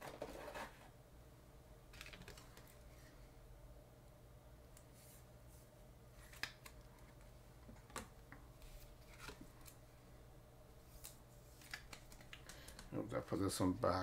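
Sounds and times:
low room hum: 0.0s - 14.0s
trading cards rustling: 10.9s - 13.0s.

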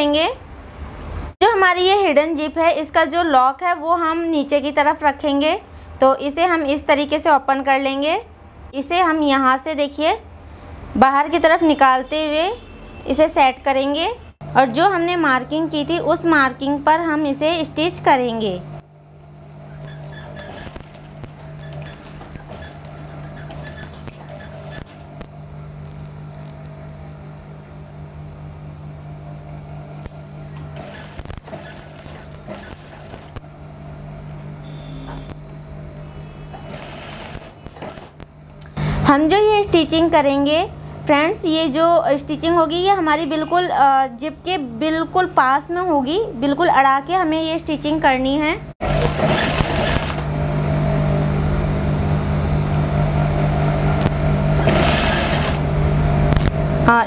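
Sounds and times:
sewing machine motor humming: 19.4s - 26.5s, 29.6s - 34.0s, 36.4s - 38.3s, 48.8s - 50.7s, 53.8s - 56.5s.

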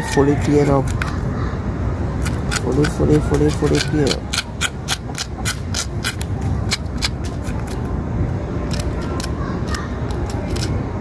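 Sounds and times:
steady low rumble: 0.2s - 11.0s
knife scraping fish scales: 2.2s - 7.8s, 10.2s - 10.8s.

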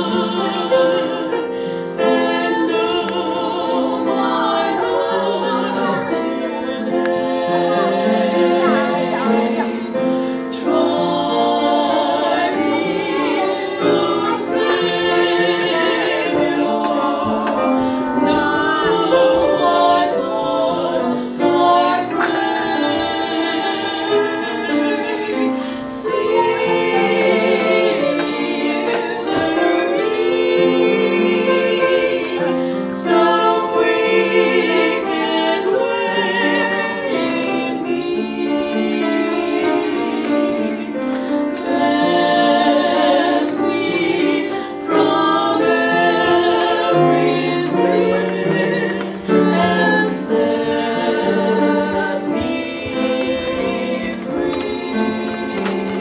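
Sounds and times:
women singing a hymn: 0.0s - 56.0s.

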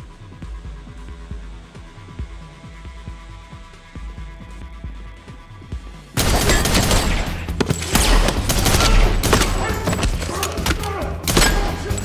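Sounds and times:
music: 0.0s - 12.0s
rapid gunfire: 6.2s - 10.4s.

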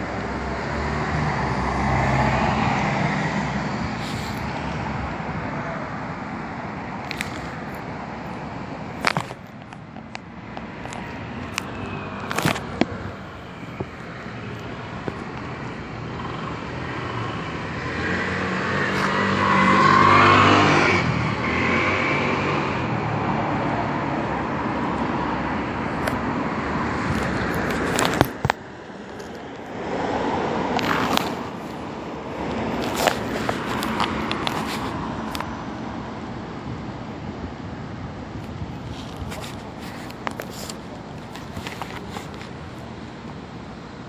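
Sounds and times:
road traffic noise: 0.0s - 44.0s
motor vehicle passing: 10.7s - 35.5s.

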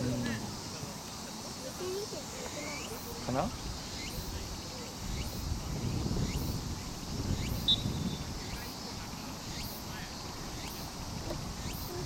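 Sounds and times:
wind buffeting microphone: 2.8s - 12.0s.

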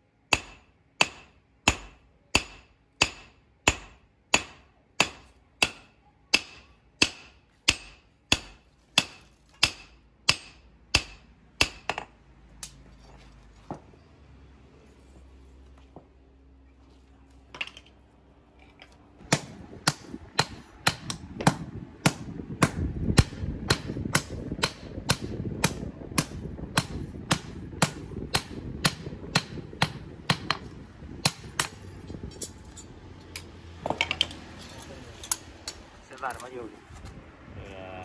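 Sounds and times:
hammer striking hot steel on anvil: 0.3s - 12.8s, 19.3s - 31.8s.

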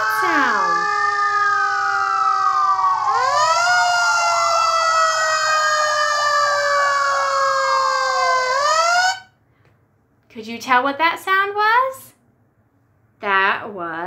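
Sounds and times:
fire truck siren wailing: 0.0s - 9.3s.

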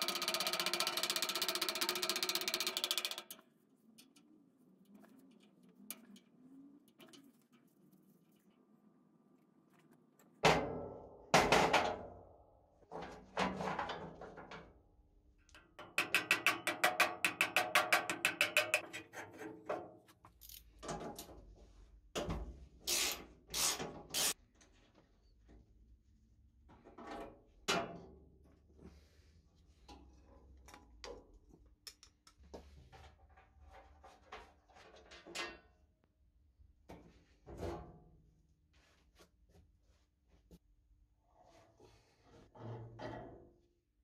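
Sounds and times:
hammer knocking on wooden block: 16.0s - 18.8s.

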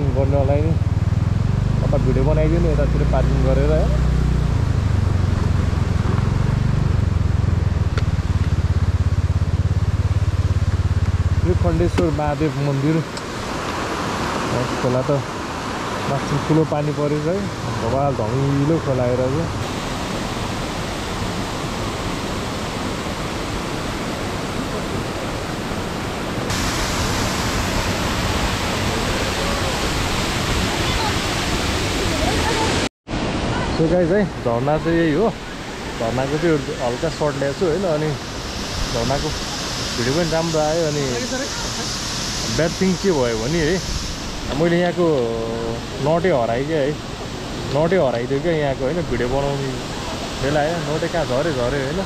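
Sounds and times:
fast-flowing water rushing: 0.0s - 52.0s
motorcycle engine idling: 4.7s - 12.2s.

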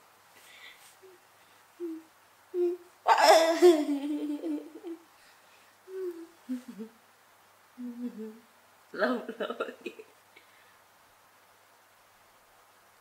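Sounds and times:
woman humming and murmuring: 1.8s - 5.0s, 5.9s - 7.0s, 7.7s - 8.5s.

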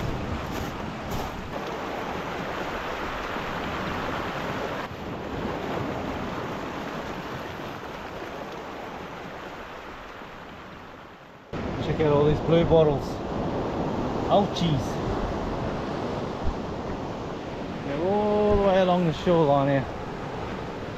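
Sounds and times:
wind on microphone: 0.0s - 8.2s, 14.9s - 17.8s
ocean waves on rocky shore: 0.0s - 20.9s.

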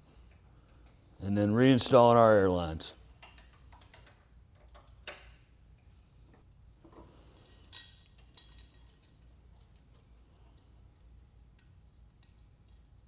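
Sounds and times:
air fittings clicking: 3.1s - 5.4s.

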